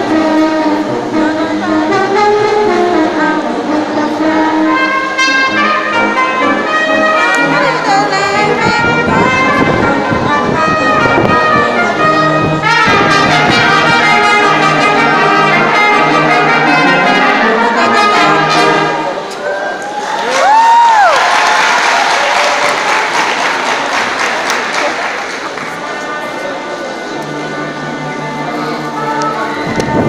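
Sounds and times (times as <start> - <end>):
brass ensemble playing: 0.0 - 19.3, 26.8 - 30.0.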